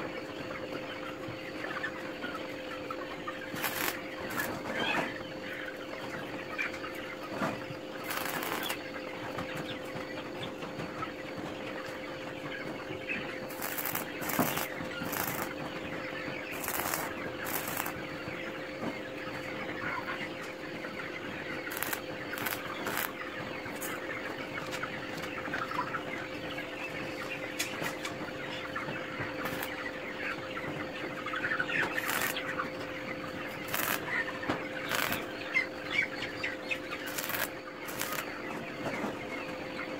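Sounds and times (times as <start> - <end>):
chickens clucking: 0.0 - 39.9
electrical hum: 0.0 - 39.9
arc welder crackling: 3.4 - 4.5, 8.0 - 8.9, 13.5 - 15.6, 16.5 - 18.0, 21.7 - 23.2, 29.4 - 29.8, 32.0 - 32.4, 33.6 - 34.1, 34.8 - 35.3, 37.0 - 38.3.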